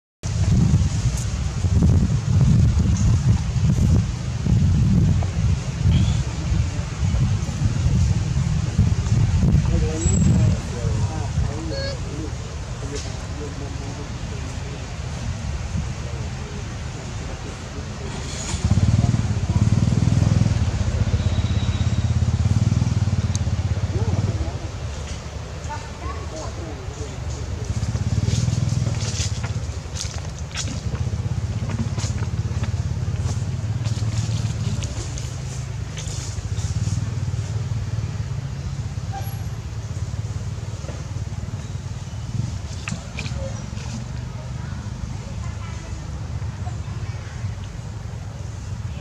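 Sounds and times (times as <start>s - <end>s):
steady low rumble: 0.2s - 39.0s.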